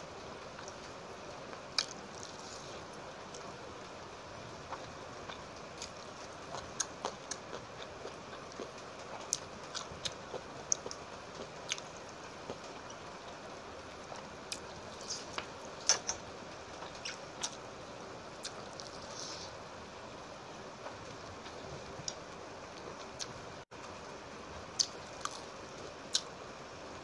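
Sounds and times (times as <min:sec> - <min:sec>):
steady hiss: 0:00.0 - 0:27.0.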